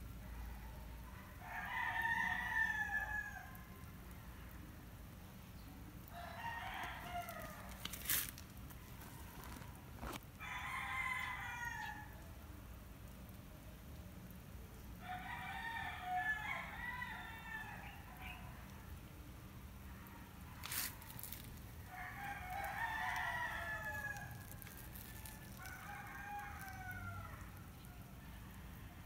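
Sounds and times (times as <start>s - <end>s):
rooster crowing: 1.4s - 3.6s, 6.1s - 7.8s, 10.4s - 12.2s, 20.7s - 27.6s.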